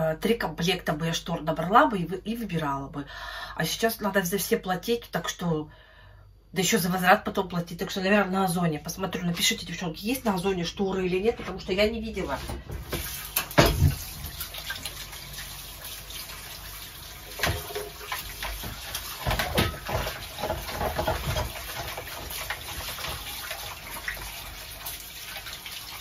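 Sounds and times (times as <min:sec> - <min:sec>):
knocks and clinks against sink: 0:12.8 - 0:14.1, 0:17.4 - 0:22.1
kitchen tap running into sink: 0:12.8 - 0:26.0.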